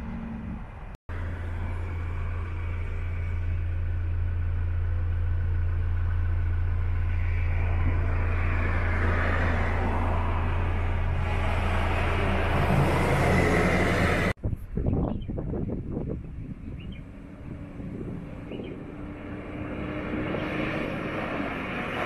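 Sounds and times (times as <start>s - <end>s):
truck diesel engine droning: 0.0s - 14.4s.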